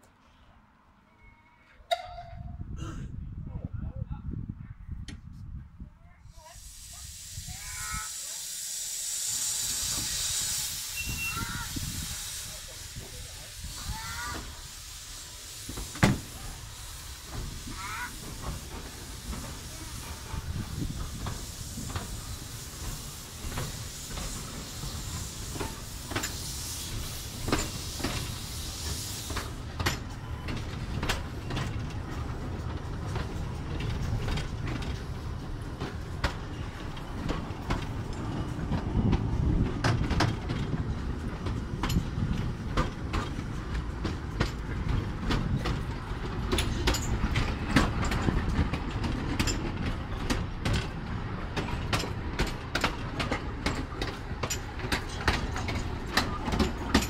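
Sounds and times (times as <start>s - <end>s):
low train rumble: 0.1s - 57.0s
steam hiss: 6.3s - 57.0s
wheels clicking over rail joints: 15.6s - 57.0s.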